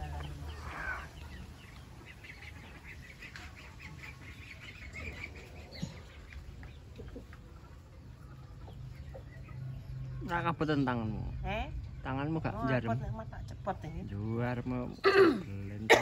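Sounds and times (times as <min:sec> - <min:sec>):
chickens and ducks calling: 0:00.0 - 0:12.0.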